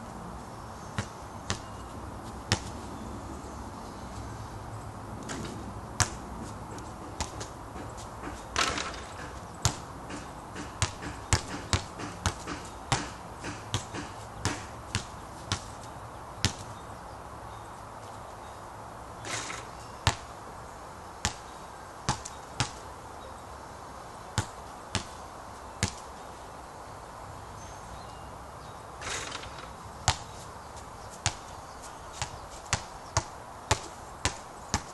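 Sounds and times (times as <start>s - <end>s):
basketball bouncing: 1.0s - 1.8s, 2.5s - 2.7s, 5.3s - 15.8s, 16.4s - 16.6s, 19.3s - 20.2s, 22.1s - 22.8s, 32.2s - 34.9s.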